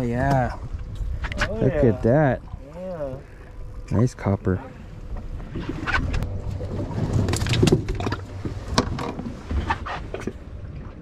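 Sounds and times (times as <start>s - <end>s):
boat engine low rumble: 0.0s - 11.0s.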